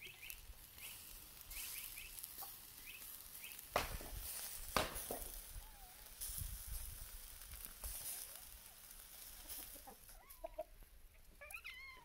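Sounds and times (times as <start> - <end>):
faint clucking animal calls: 9.3 - 12.0.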